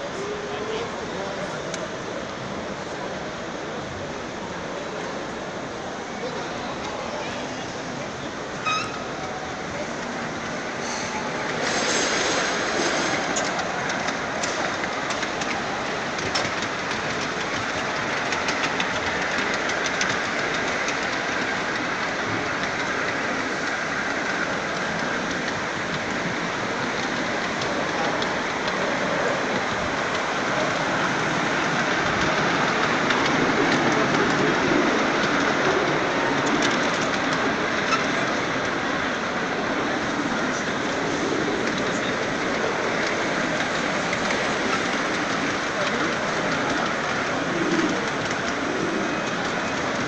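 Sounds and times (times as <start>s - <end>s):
train wheels clicking over rail joints: 0.0s - 50.0s.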